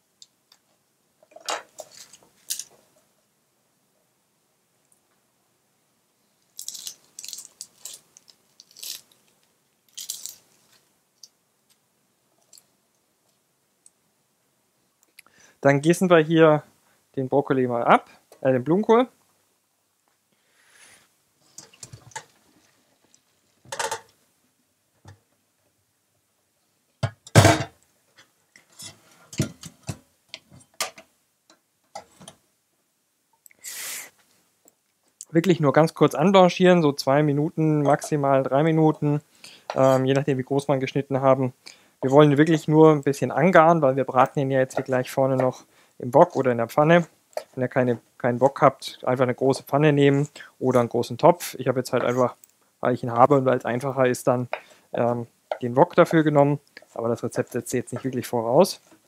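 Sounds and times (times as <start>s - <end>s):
onion skin crackling: 6.5s - 10.8s
short hiss: 20.4s - 21.1s, 33.5s - 34.3s
cookware clattering: 23.7s - 24.1s.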